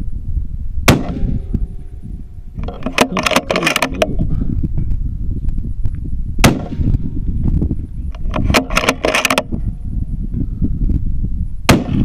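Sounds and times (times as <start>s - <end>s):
rifle shot: 0.8s - 1.8s, 6.4s - 7.0s, 11.7s - 12.0s
rifle bolt clicking: 8.1s - 9.5s.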